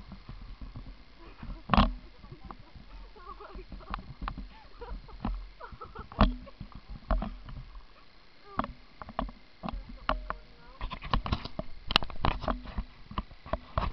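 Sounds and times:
camera handling knocks and rubbing: 10.8 - 13.9.

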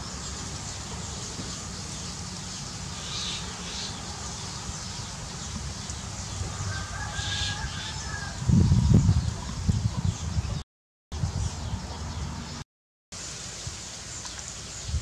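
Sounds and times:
long bird call: 0.0 - 8.4
sparrows chirping: 0.0 - 10.6, 11.2 - 12.6, 13.3 - 15.0.

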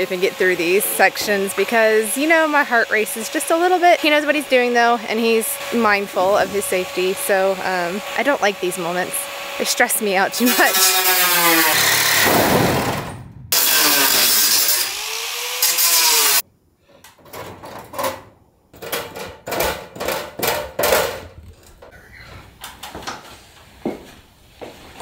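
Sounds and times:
power saw cutting metal roof: 0.0 - 16.4
knocks and clatters: 17.1 - 22.0.

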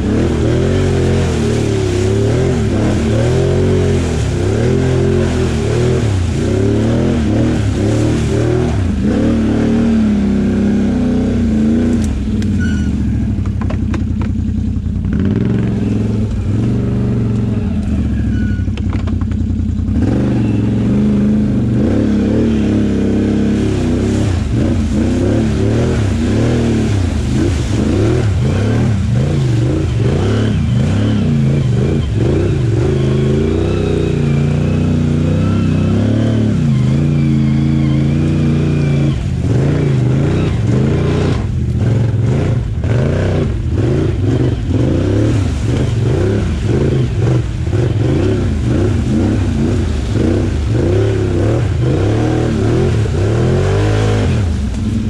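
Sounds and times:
engine revving: 0.0 - 13.4, 14.3 - 55.0.

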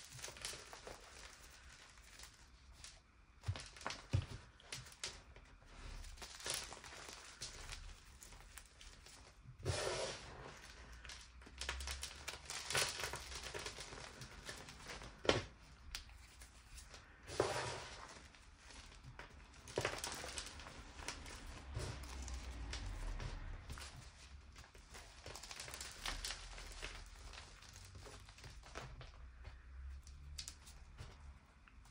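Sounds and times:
chalk crunching by hand: 9.6 - 11.0, 16.4 - 18.3.

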